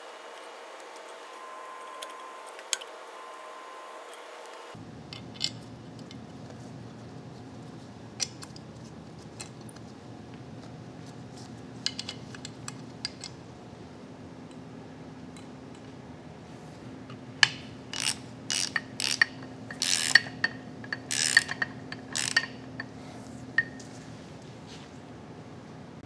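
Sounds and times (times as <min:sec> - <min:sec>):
metal parts clinking on steel: 0:17.4 - 0:23.0.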